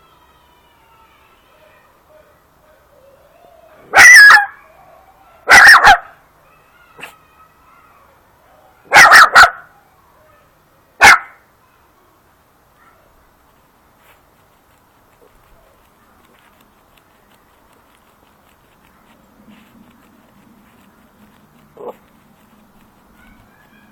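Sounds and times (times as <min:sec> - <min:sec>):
puppy barking in sharp yaps: 0:03.8 - 0:04.6, 0:05.5 - 0:06.2, 0:08.9 - 0:09.7, 0:11.0 - 0:11.4.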